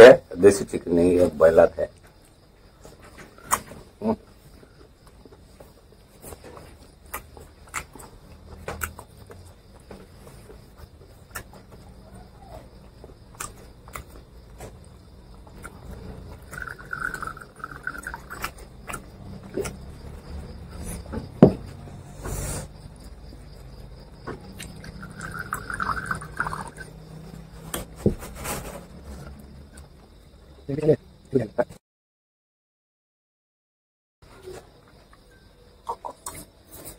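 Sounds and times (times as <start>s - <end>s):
eating sounds: 1.9s - 28.0s, 35.8s - 36.9s
glass bottle and tumbler clinking: 25.0s - 26.9s.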